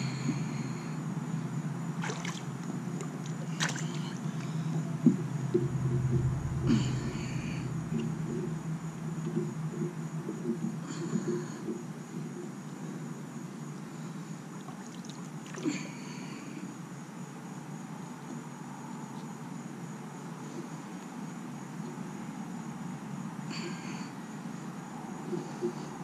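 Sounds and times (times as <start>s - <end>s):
pool water lapping and sloshing: 1.9s - 4.8s, 14.5s - 16.1s.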